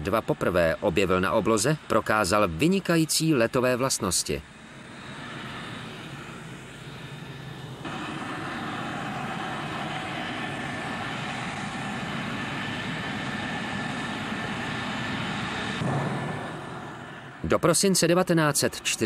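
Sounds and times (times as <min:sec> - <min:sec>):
aircraft engine running: 0:03.8 - 0:17.8.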